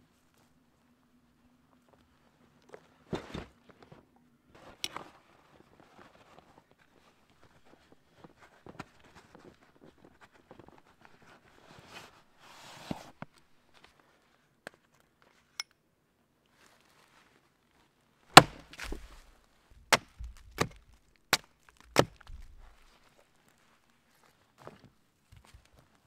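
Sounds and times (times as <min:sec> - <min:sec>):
soft rustling: 0:00.0 - 0:15.4, 0:16.5 - 0:21.1, 0:22.1 - 0:26.0
axe chopping wood: 0:18.3 - 0:19.2, 0:19.9 - 0:22.8.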